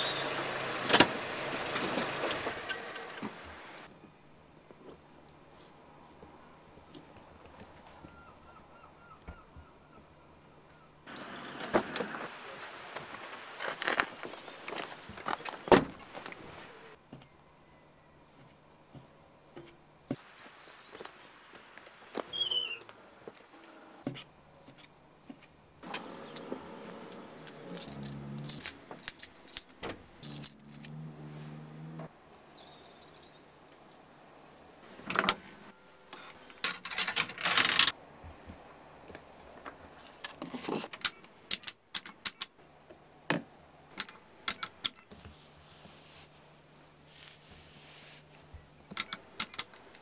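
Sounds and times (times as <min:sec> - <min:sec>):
handling sounds: 0:11.6 - 0:22.3, 0:23.2 - 0:31.0
small metal objects jingling: 0:27.7 - 0:30.9.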